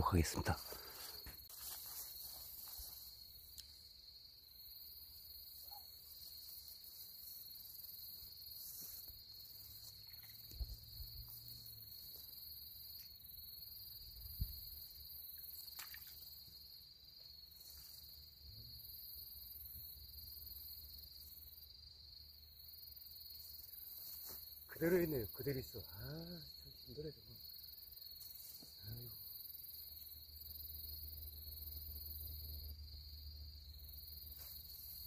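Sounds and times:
crickets trilling: 0:00.0 - 0:35.0.

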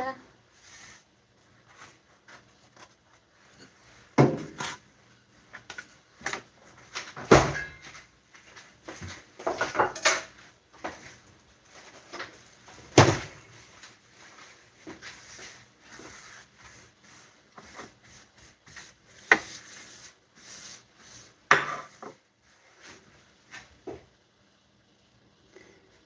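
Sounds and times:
household knocks and clatters: 0:04.1 - 0:04.8, 0:06.2 - 0:08.1, 0:08.9 - 0:11.0.

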